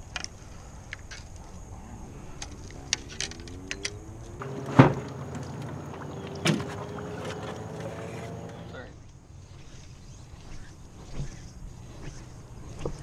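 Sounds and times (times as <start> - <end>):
sharp knocks: 4.4 - 8.5.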